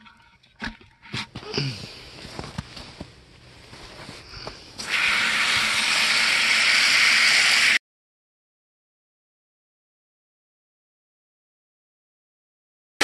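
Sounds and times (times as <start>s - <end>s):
hose spraying water into bucket: 4.8s - 7.8s.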